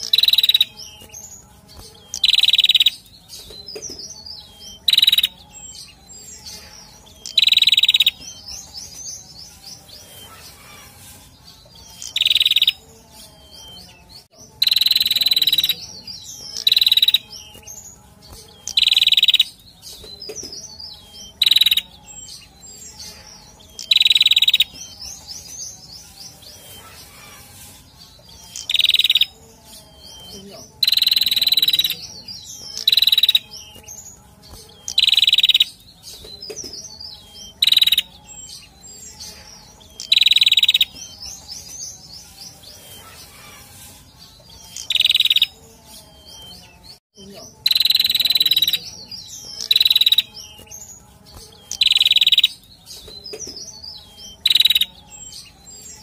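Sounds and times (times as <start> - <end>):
bird chirping and twittering: 0.0 - 56.0
bird harsh high calls: 10.0 - 12.8, 26.5 - 29.4, 42.7 - 45.6.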